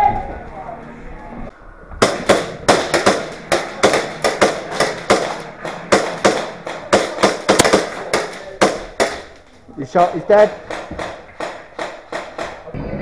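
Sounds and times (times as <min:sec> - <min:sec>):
airsoft gun shots with echo: 0:02.0 - 0:09.3.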